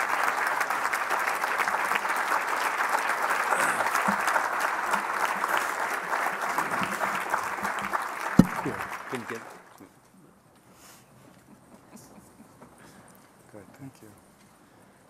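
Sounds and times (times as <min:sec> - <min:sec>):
audience applauding: 0:00.0 - 0:09.8.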